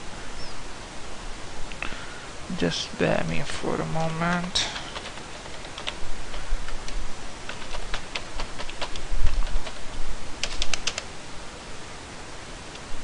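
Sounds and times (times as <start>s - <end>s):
keyboard key clicks: 6.7s - 9.8s, 10.4s - 11.1s.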